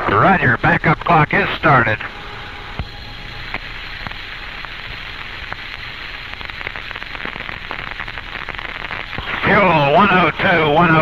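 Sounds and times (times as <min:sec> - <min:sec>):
radio crackles and clicks: 0:00.0 - 0:11.0
radio static hiss: 0:00.0 - 0:11.0.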